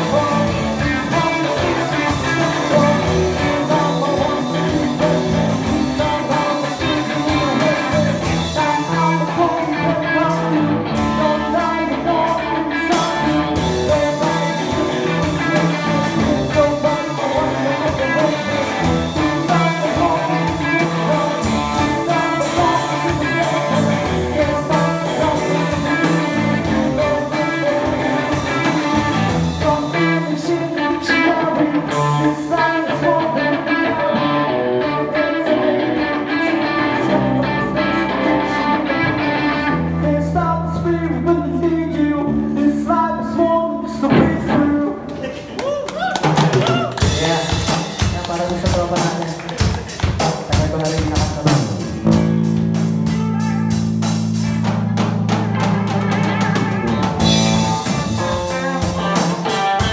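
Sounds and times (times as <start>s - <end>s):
guitar: 0.0s - 59.9s
live band playing: 0.0s - 59.9s
person singing: 0.0s - 59.9s
steady beat: 44.1s - 59.9s.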